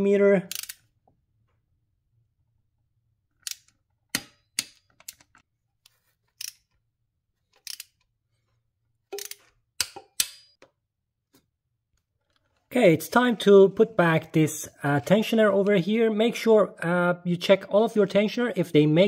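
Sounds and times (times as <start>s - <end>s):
torque wrench clicks: 0.5s - 0.8s, 7.6s - 8.0s, 9.1s - 10.4s.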